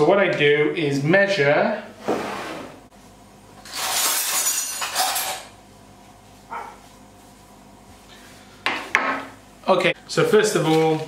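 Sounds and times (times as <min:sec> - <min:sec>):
kitchen handling noises: 0:03.6 - 0:05.5.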